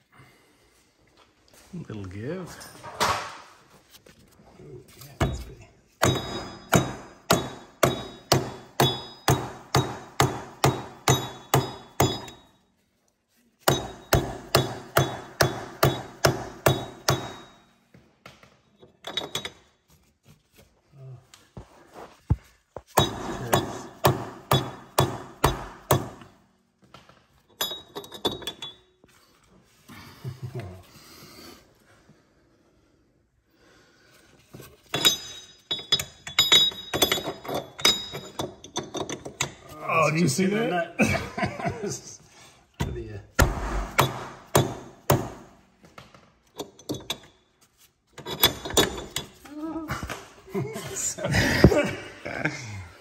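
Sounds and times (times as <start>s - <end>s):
hammer striking steel: 5.2s - 12.5s, 13.6s - 17.7s, 23.0s - 26.3s, 43.4s - 45.6s.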